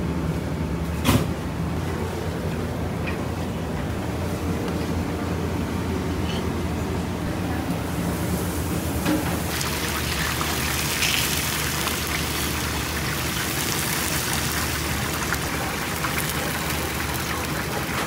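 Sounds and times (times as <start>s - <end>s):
food sizzling in hot oil: 9.3s - 18.0s.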